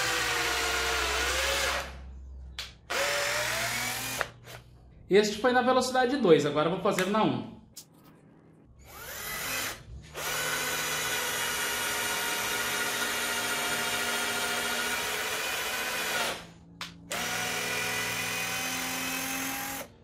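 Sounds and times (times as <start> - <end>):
cordless drill driving screw into wood: 2.9 - 4.6, 17.1 - 19.9.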